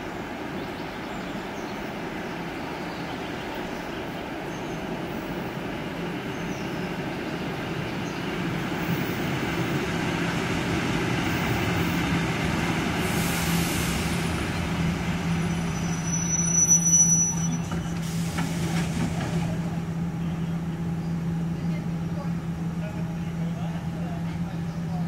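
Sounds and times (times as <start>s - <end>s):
train running with low hum: 0.0s - 25.0s
air brakes hissing: 13.0s - 19.6s
high-pitched brake squeal: 15.4s - 18.0s.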